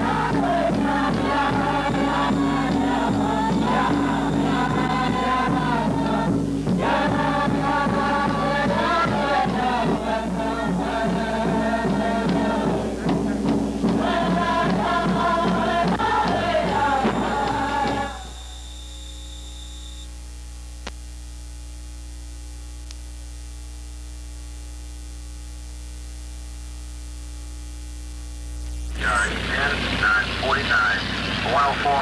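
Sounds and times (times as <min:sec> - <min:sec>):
group singing over beat: 0:00.0 - 0:18.6
steady hum: 0:00.0 - 0:32.0.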